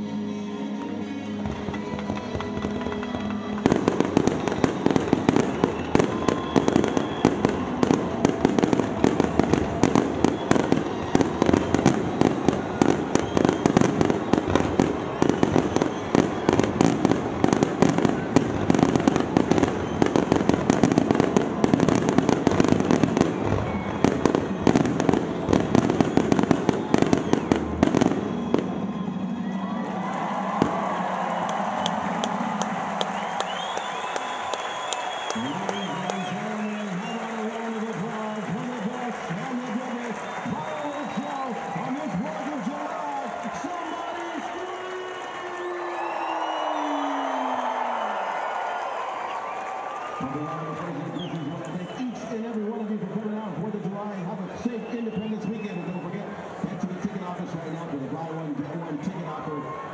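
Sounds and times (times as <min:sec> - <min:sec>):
music playing: 0:00.0 - 0:25.6
fireworks explosions and crackles: 0:00.0 - 0:59.9.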